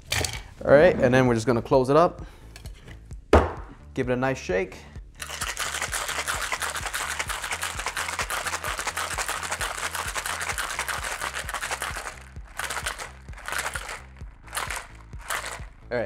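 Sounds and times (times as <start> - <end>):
ice rattling in metal shaker: 5.2 - 15.7.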